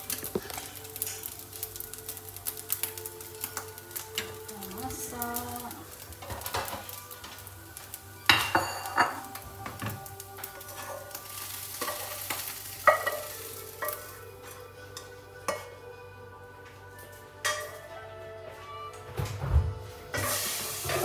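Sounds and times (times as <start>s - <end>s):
sizzling: 0.0s - 18.8s, 19.6s - 21.0s
spatula scraping a frying pan: 10.0s - 15.8s, 20.1s - 21.0s.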